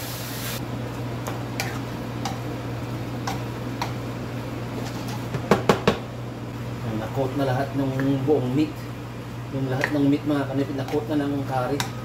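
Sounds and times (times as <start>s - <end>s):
hiss: 0.0s - 0.6s
steady low hum: 0.6s - 12.0s.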